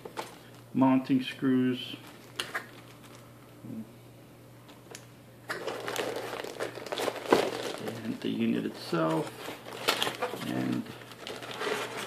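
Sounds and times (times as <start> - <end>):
plastic bag crinkling: 2.0 - 3.3, 5.5 - 12.0.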